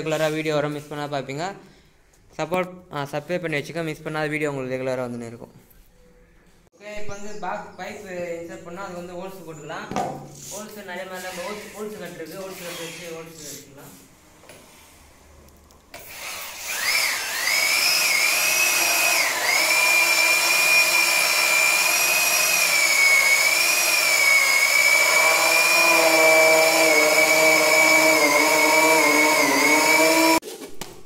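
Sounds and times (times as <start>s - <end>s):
electric drill hole saw whining: 16.0s - 30.4s.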